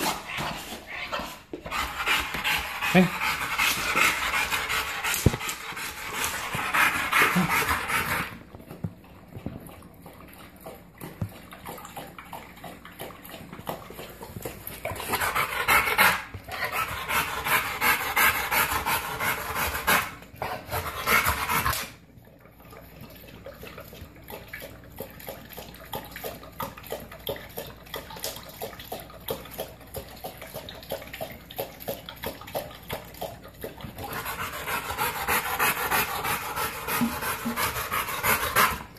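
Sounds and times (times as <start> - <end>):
dog panting hard: 0.0 - 8.4, 13.6 - 21.9, 34.0 - 38.9
dog lapping water from bowl: 0.0 - 38.9.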